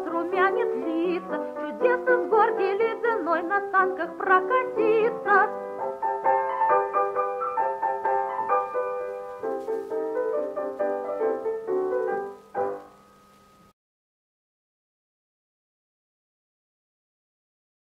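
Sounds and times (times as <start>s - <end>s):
piano playing: 0.0s - 13.7s.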